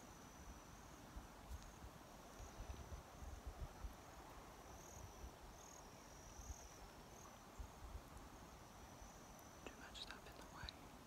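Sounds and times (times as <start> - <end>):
high-pitched insect trills: 0.0 - 11.0
wind rumbling on microphone: 1.1 - 6.9.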